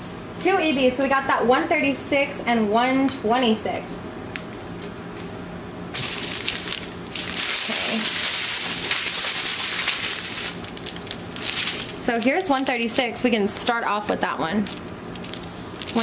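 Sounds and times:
plastic bags crinkling: 0:06.0 - 0:13.3, 0:14.0 - 0:16.0.

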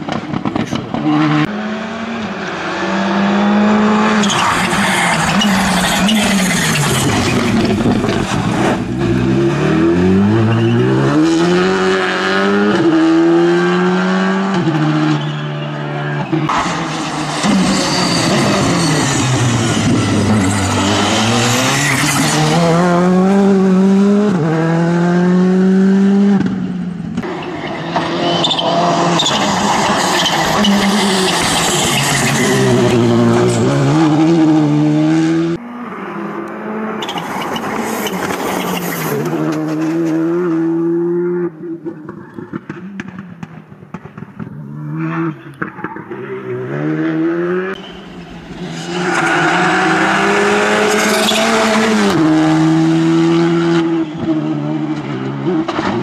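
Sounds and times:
rally car engine accelerating: 0:00.1 - 0:56.0.

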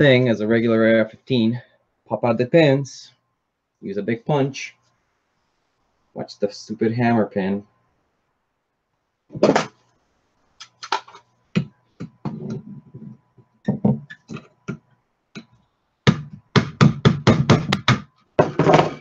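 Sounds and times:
hammer tapping a punch: 0:16.1 - 0:18.1.

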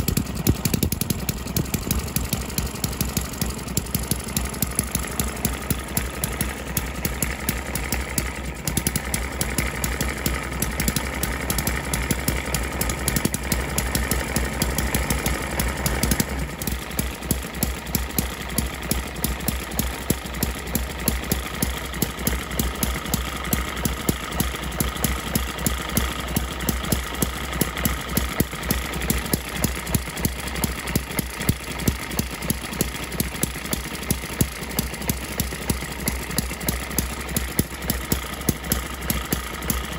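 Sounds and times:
small engine firing beats: 0:00.0 - 0:39.9.

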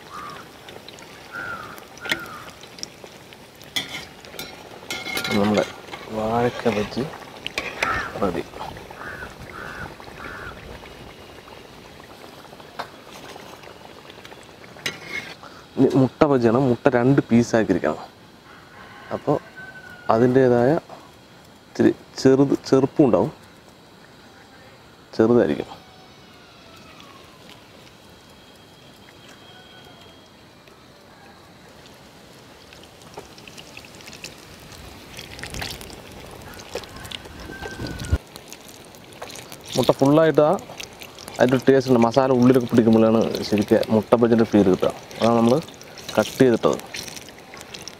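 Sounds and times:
bird calling: 0:00.0 - 0:00.6, 0:01.3 - 0:02.6, 0:07.7 - 0:08.3, 0:08.9 - 0:11.3, 0:29.0 - 0:30.4, 0:36.4 - 0:38.2
frying oil bubbling and sizzling: 0:00.0 - 0:17.9, 0:18.7 - 0:24.2, 0:25.1 - 0:47.9.

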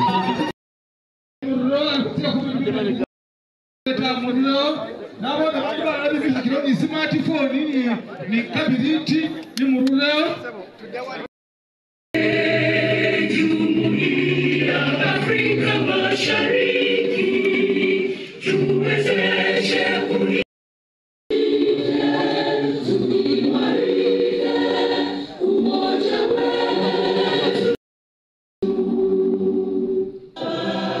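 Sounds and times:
choir singing: 0:12.2 - 0:20.5, 0:21.3 - 0:27.8, 0:28.6 - 0:31.0.

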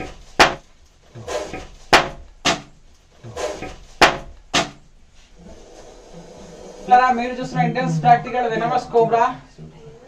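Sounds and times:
snake hissing: 0:05.4 - 0:07.5.

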